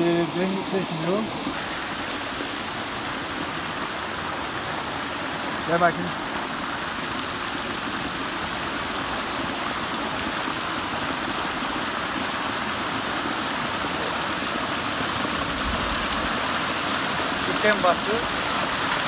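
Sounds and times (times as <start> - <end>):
creek water rushing and splashing: 0.0 - 19.0.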